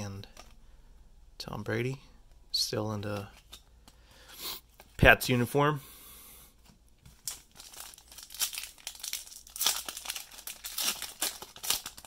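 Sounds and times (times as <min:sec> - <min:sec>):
foil wrapper crinkling: 0:07.2 - 0:12.0.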